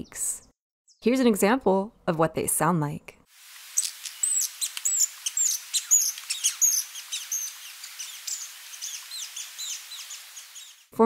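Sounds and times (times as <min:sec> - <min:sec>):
steady hiss: 0:03.3 - 0:10.9
hummingbird high-pitched squeaks: 0:03.8 - 0:10.9.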